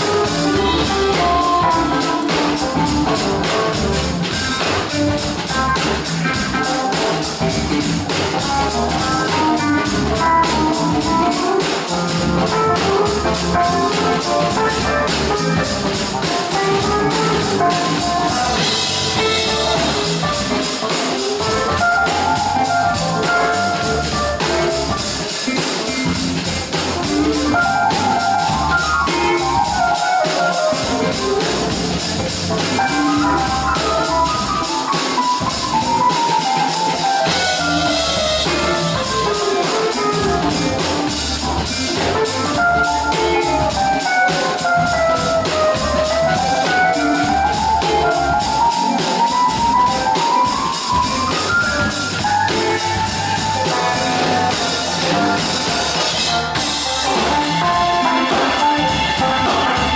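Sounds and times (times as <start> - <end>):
drum kit: 0.0 - 59.9
guitar: 0.0 - 59.9
jazz-funk band playing: 0.0 - 59.9.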